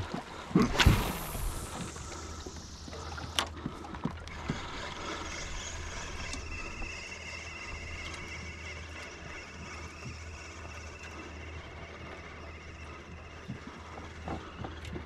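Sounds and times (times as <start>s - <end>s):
water lapping against kayak hull: 0.0s - 15.0s
steady low rumble: 0.5s - 6.8s.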